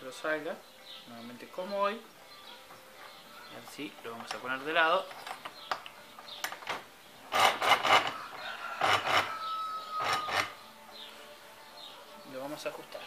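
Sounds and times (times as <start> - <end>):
metal clicks: 4.0 - 8.1
rasping metal scrapes: 7.3 - 9.4, 10.0 - 10.6.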